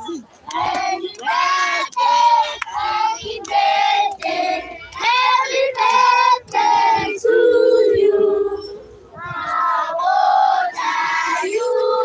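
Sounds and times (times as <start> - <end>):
high-pitched voices singing: 0.4 - 12.0.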